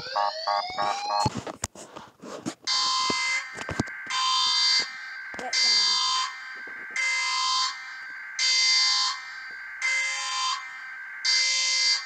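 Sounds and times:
pulsing buzzing alarm tone: 0.0s - 1.3s.

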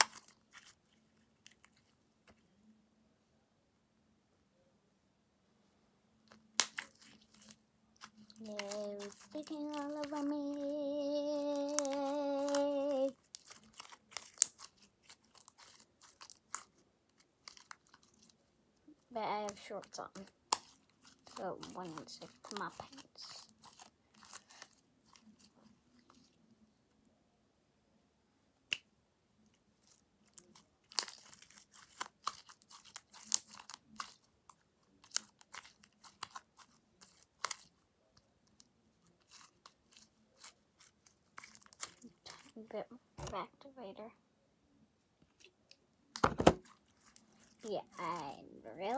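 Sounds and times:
child humming: 8.6s - 13.2s.

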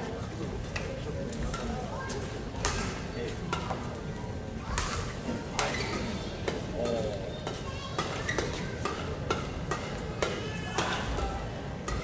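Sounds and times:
low crowd murmur: 0.0s - 12.0s
shoe squeaks on court floor: 5.6s - 6.1s.

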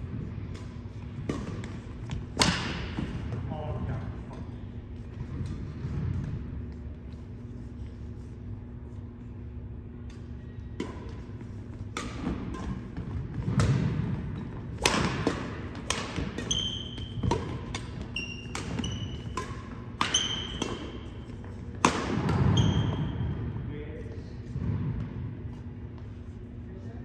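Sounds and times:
sneakers squeaking: 0.0s - 23.6s
rackets hitting shuttlecock: 0.4s - 3.4s, 10.0s - 23.4s.

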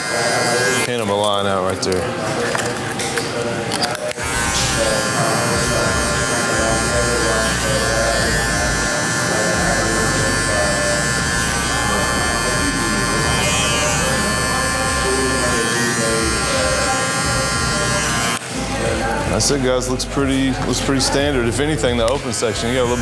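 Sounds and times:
hair clipper running: 0.0s - 1.0s, 4.0s - 19.2s, 22.0s - 23.0s
background music: 4.1s - 23.0s.

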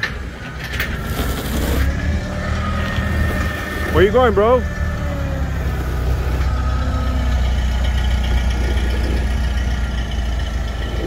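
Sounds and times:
forklift engine running: 0.0s - 11.0s.

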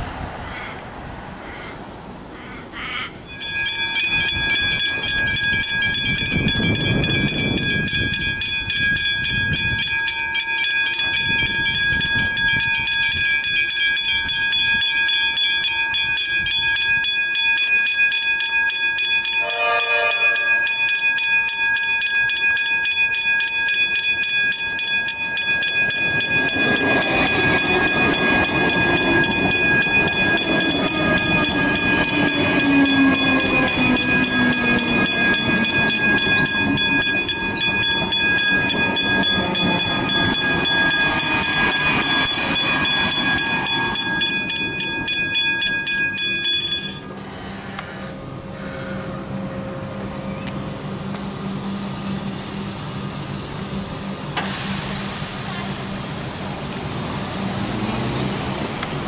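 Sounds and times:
train rumble: 0.0s - 59.0s
level crossing bell ringing: 3.3s - 47.2s.

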